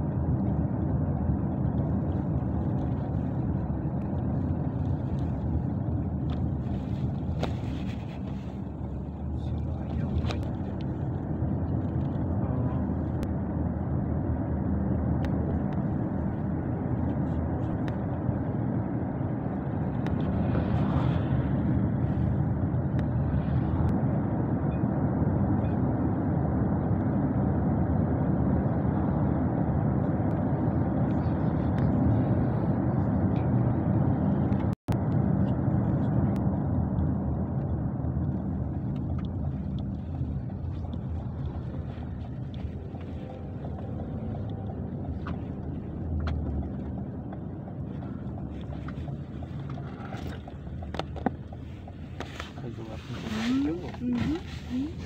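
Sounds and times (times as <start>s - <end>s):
road noise: 0.0s - 55.0s
vehicle engine drone: 0.0s - 55.0s.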